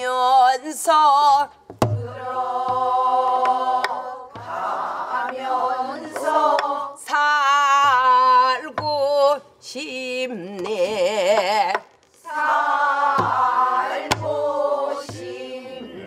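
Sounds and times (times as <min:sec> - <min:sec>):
person leading singing: 0:00.0 - 0:16.0
women singing folk song: 0:00.0 - 0:16.0
barrel drum struck with stick: 0:14.1 - 0:14.4.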